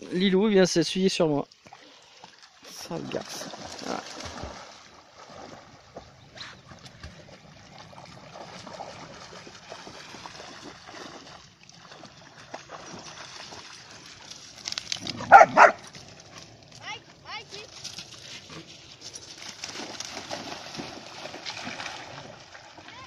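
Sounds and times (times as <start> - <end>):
water sloshing and splashing: 1.2 - 23.0
dogs barking: 15.2 - 15.9.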